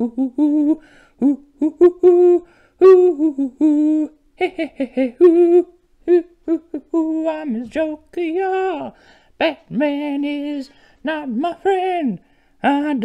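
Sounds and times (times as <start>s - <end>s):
man humming a tune: 0.0s - 7.8s.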